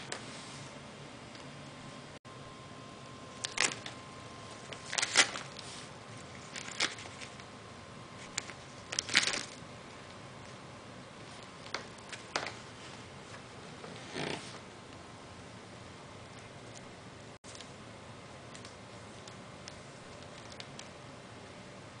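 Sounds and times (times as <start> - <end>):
wrapping paper rustling and crackling: 3.4 - 7.5, 8.2 - 9.6, 18.6 - 20.9.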